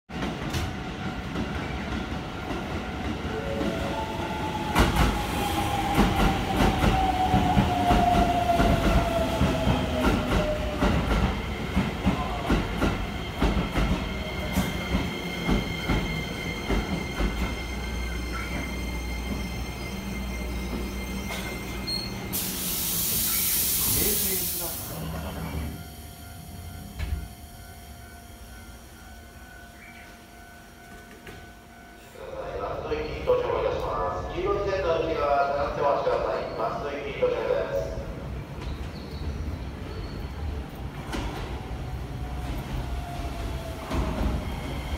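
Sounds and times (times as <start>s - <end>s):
air hiss: 22.1s - 25.2s.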